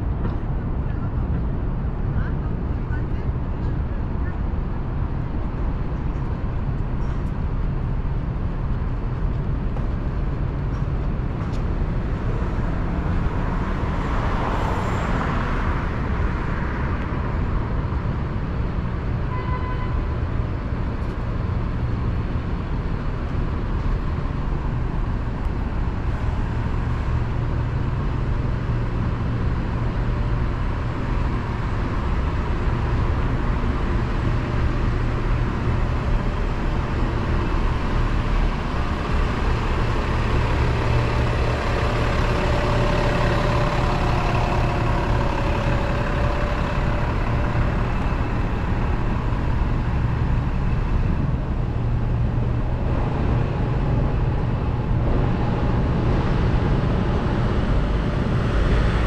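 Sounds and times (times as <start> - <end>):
traffic rumble: 0.0 - 59.0
vehicle passing close: 35.5 - 59.0.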